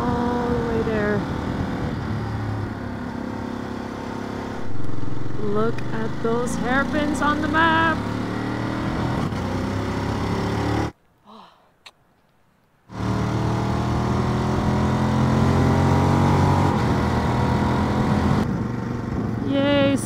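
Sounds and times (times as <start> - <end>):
motorcycle engine running: 0.0 - 10.9
wind noise: 17.9 - 20.0.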